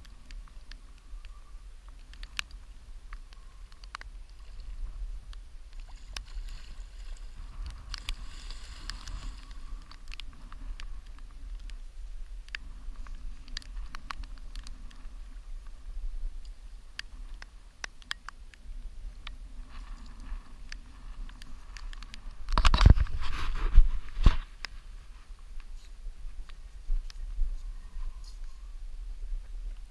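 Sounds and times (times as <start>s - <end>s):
wind buffeting microphone: 2.5s - 17.2s.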